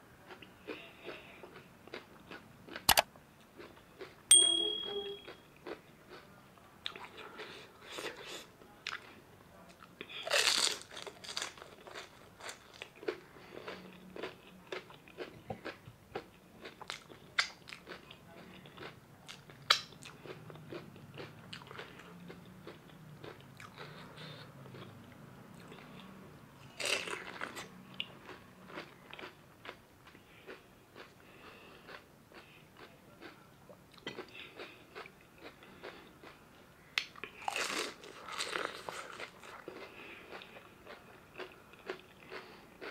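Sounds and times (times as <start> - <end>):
chewing: 5.3 - 42.9
crisp shells crunching: 10.3 - 12.8.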